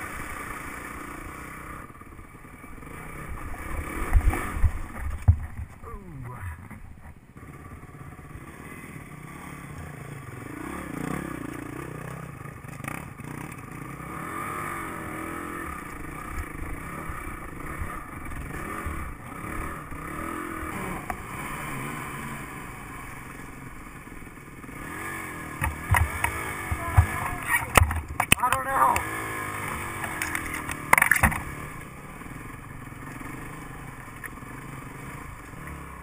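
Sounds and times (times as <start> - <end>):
dirt bike engine revving: 0.0 - 36.0
bike clattering over rocks: 4.3 - 5.8, 25.6 - 29.1, 29.9 - 31.5.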